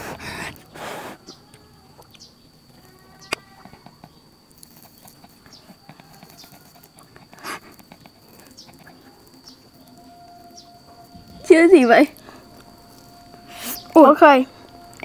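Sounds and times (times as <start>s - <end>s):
small handling ticks: 1.2s - 15.0s
food crunching: 1.3s - 11.4s
faint high-pitched tone: 9.0s - 15.0s.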